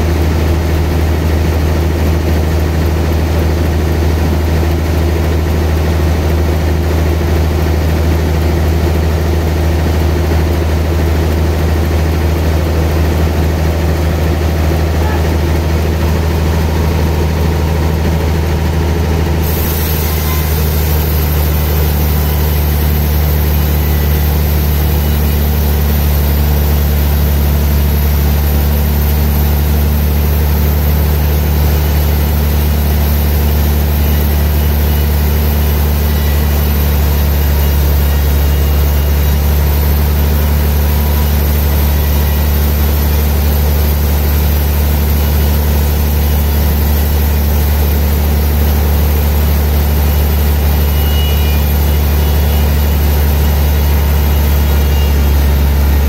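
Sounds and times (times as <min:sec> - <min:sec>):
sawmill running with low hum: 0:00.0 - 0:56.0
saw blade hissing through log: 0:19.4 - 0:56.0.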